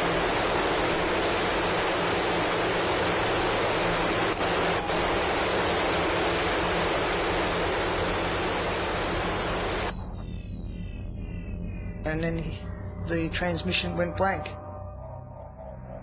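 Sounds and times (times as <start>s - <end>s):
radio static: 0.0s - 10.1s.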